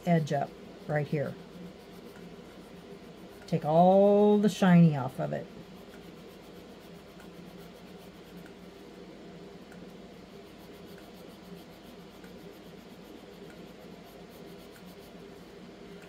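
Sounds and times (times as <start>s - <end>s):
steady low hum: 0.0s - 16.0s
nail file scratching resin: 0.2s - 3.5s, 10.5s - 15.2s.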